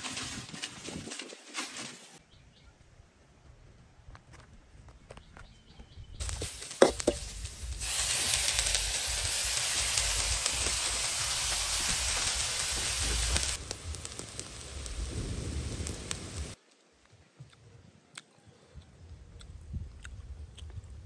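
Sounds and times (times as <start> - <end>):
food sizzling in a hot wok: 6.2 - 16.6.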